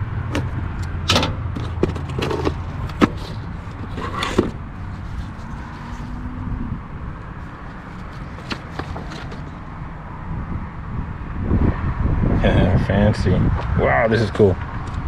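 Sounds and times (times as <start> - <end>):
cardboard box rustling and knocking: 1.5 - 4.6, 8.2 - 9.5.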